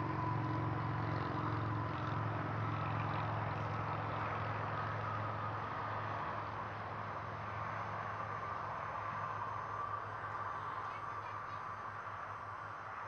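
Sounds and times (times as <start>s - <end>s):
faint high whine: 0.0s - 13.0s.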